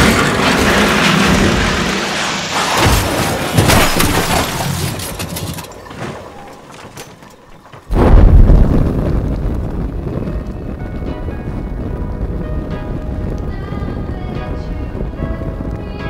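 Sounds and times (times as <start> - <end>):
crashing and shattering: 0.0 - 8.0
deep boom: 7.9 - 13.4.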